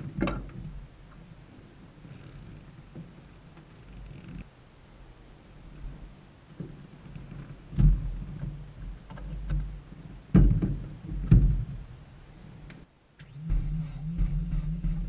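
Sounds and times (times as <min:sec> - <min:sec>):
dull knocks on aircraft: 0:10.3 - 0:11.7
low rumble: 0:13.2 - 0:15.0.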